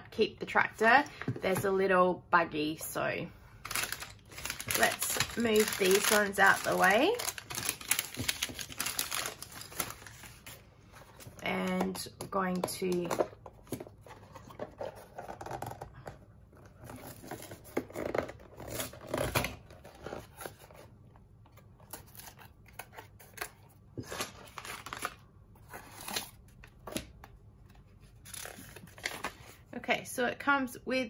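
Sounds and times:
plastic bag and paper rustling: 3.6 - 11.4.

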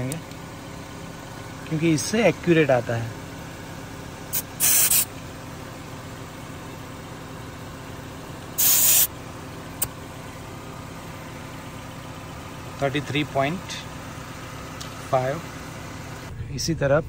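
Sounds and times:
air hissing from tyre valve: 4.3 - 5.1, 8.6 - 9.1.

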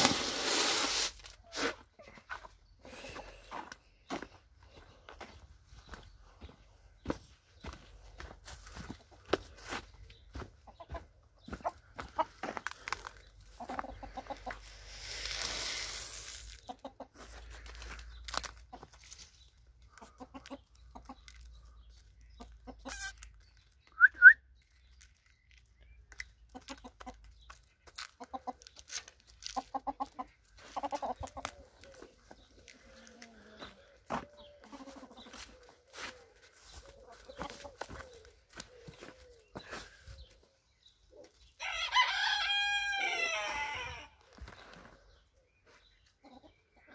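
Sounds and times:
brief rustling hiss: 0.0 - 1.7, 14.9 - 16.6
hens clucking: 1.4 - 23.4, 26.2 - 39.6, 46.0 - 46.9.

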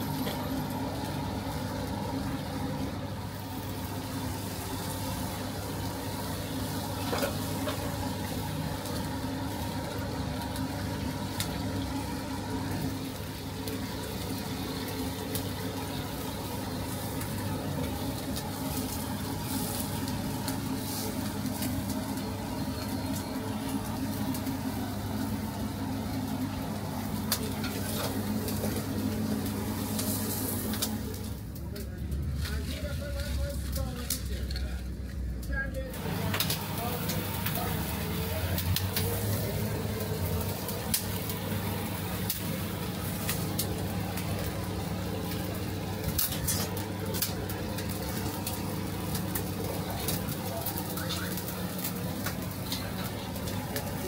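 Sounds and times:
chicken sizzling on grill: 0.0 - 54.0.

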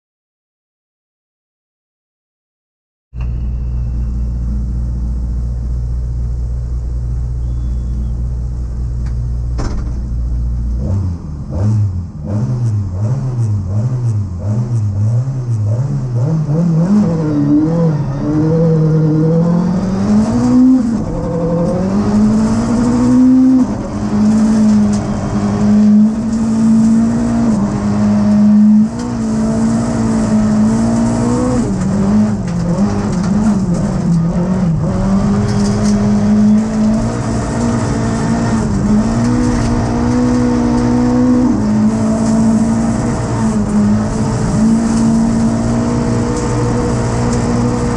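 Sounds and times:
rally car engine revving and accelerating: 10.6 - 47.9.

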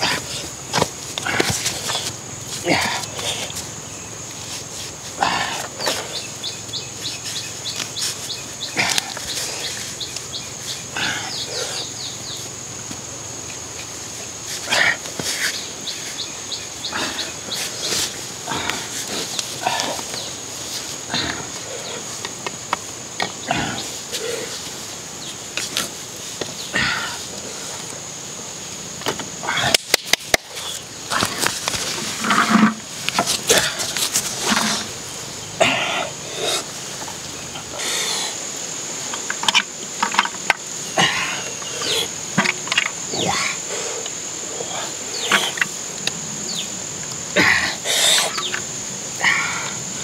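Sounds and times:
high insect drone: 0.0 - 50.0
bamboo poles knocking together: 0.4 - 2.2, 29.0 - 34.9, 39.1 - 43.2.

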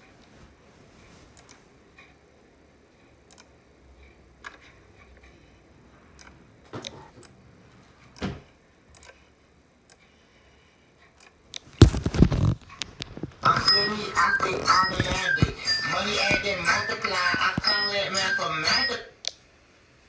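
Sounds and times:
computer mouse clicks: 1.4 - 1.6, 3.3 - 3.5, 6.2 - 7.4, 8.9 - 9.2.

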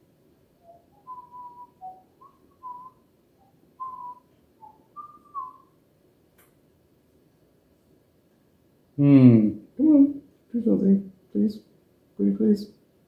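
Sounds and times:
man whistling a tune: 0.6 - 5.7.

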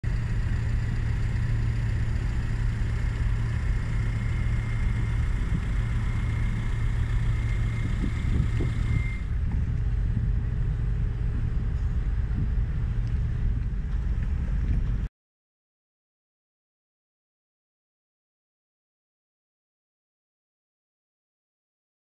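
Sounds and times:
boat engine rumble: 0.0 - 15.1
thin high whine: 0.1 - 14.2.

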